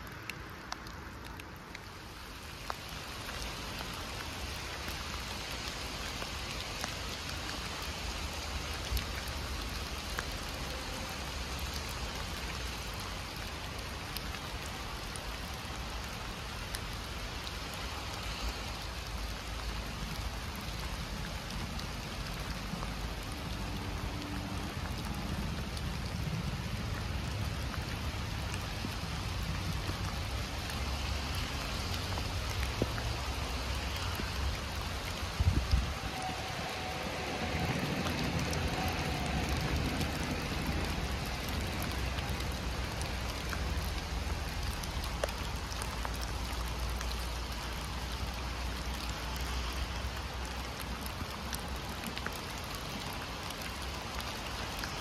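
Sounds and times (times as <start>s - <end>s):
heavy rain in forest: 0.0s - 55.0s
raindrops ticking: 0.0s - 55.0s.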